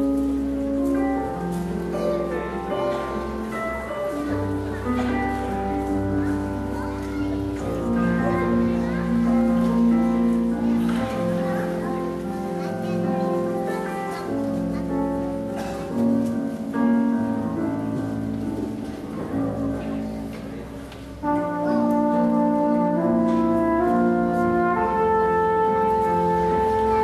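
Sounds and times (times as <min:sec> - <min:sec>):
piano: 0:00.0 - 0:27.0
trumpet holding long notes: 0:21.2 - 0:27.0.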